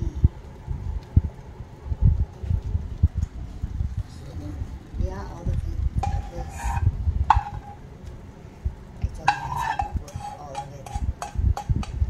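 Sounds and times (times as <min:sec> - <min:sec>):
metal lid clanking on pan: 0:06.0 - 0:07.8, 0:09.2 - 0:12.0.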